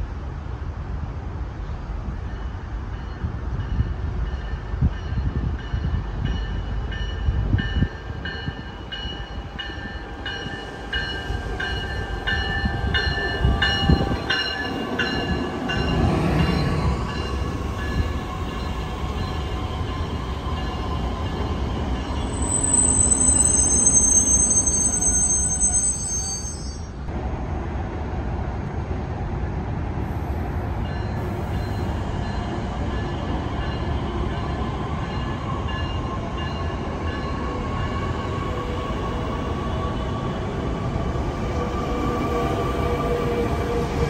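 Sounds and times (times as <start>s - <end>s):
electric train slowing to a stop: 1.7s - 27.2s, 30.0s - 44.0s
high steady squeal: 19.9s - 27.1s
bell dinging: 22.4s - 27.0s.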